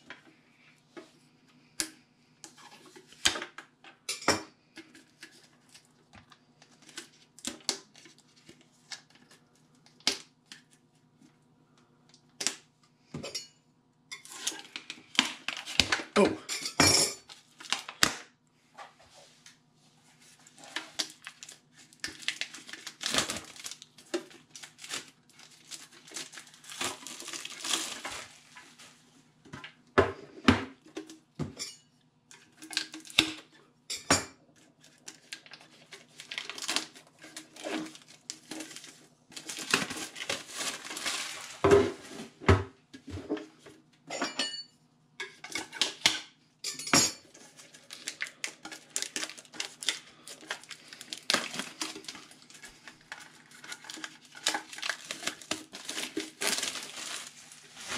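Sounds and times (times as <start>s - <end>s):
plastic shrink wrap crinkling: 17.2s - 18.2s, 20.2s - 29.1s, 34.6s - 42.4s, 47.2s - 57.9s.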